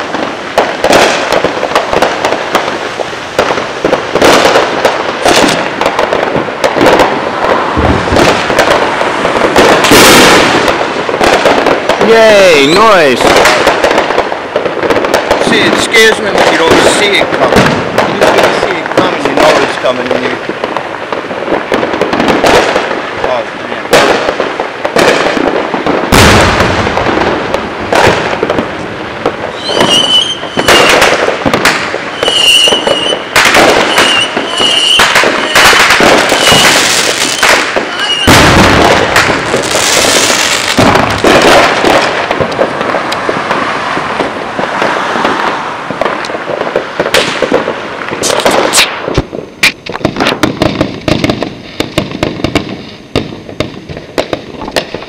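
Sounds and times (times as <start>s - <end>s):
crackling pops: 0.0s - 55.0s
fireworks bangs: 0.0s - 55.0s
firework whistles: 6.9s - 10.7s, 29.4s - 40.8s, 48.2s - 49.8s.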